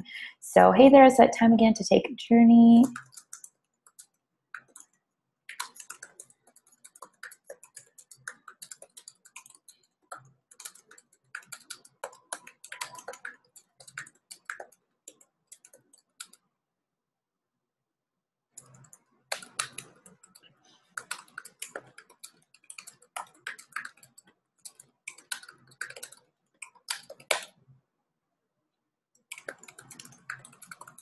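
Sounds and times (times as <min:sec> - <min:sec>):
typing on a computer keyboard: 0:02.8 - 0:16.4, 0:18.6 - 0:27.6, 0:29.2 - 0:31.0.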